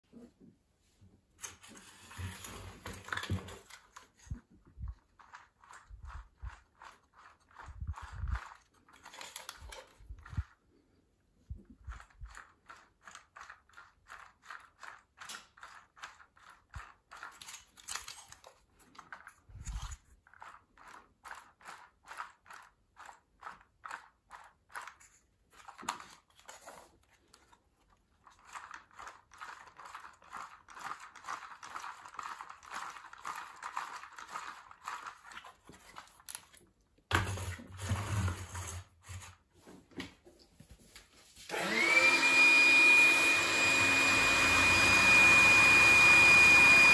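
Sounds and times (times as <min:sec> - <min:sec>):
plastic gears clicking and rattling: 0:02.4 - 0:10.6, 0:11.8 - 0:37.6.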